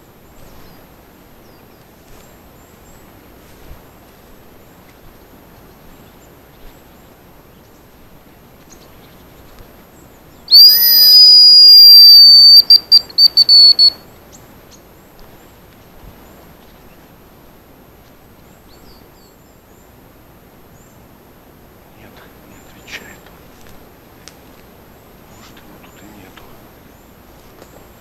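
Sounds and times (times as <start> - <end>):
short whistle pips: 10.5 - 14.0
decoy whistle calling: 10.5 - 14.1.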